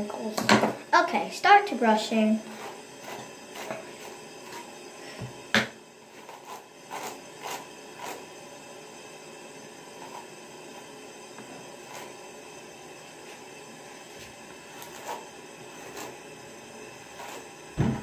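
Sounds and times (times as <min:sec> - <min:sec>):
hairbrush brushing through hair: 0:02.4 - 0:04.7, 0:06.2 - 0:08.3, 0:11.9 - 0:12.2, 0:14.1 - 0:16.2, 0:17.2 - 0:17.5.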